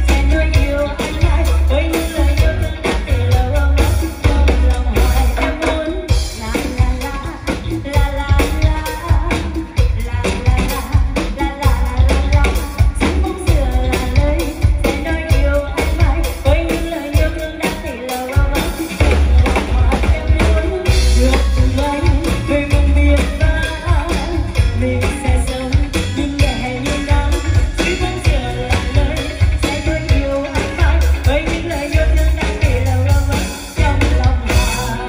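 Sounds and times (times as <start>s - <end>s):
live band over loudspeakers: 0.0s - 35.0s
woman singing into a microphone: 0.0s - 35.0s.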